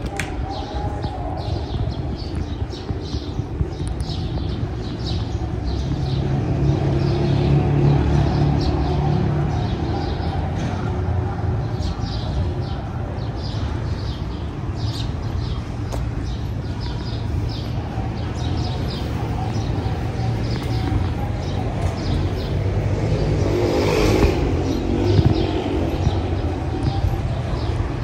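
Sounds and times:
footsteps on stone paving: 0.0 - 6.5, 14.1 - 17.6, 18.2 - 22.6
city traffic rumble: 0.0 - 28.0
passing vehicle: 19.2 - 28.0.

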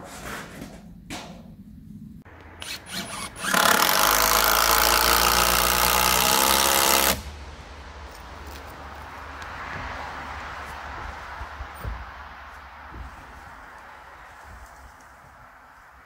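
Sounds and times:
clicks and whirrs: 2.3 - 7.3
cordless drill driving screw into wood: 2.6 - 7.2.

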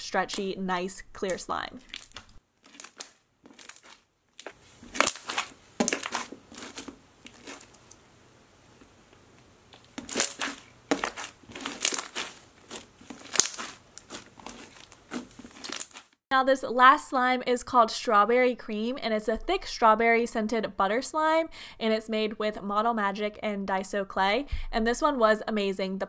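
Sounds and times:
slime crackling and crunching: 1.2 - 8.0, 9.7 - 16.2.

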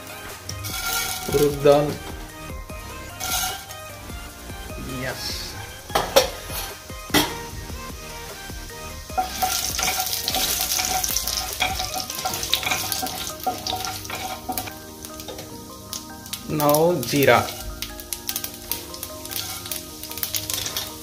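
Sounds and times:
seeds sizzling in hot oil: 0.0 - 21.0
wooden spatula stirring: 0.4 - 2.2, 2.9 - 4.1, 9.0 - 15.6, 16.3 - 21.0.

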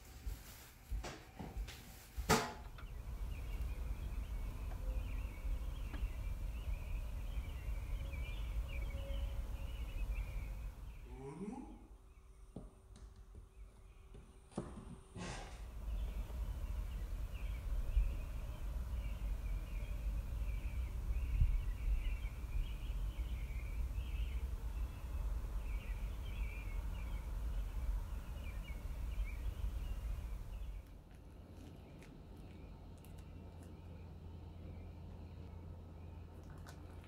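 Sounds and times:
low rumble: 2.7 - 11.1, 15.6 - 36.4
birds chirping: 2.7 - 37.0.

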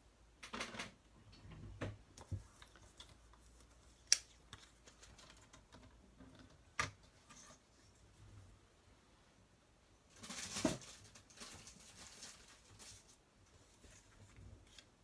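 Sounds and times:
paper rustle: 10.1 - 15.0.

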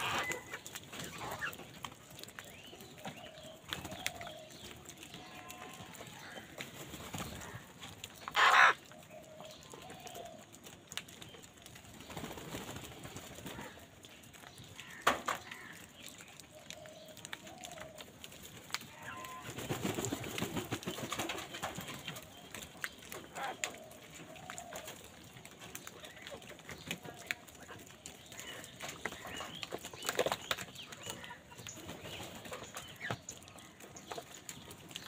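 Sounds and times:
crows cawing: 8.3 - 8.8, 14.8 - 15.8.

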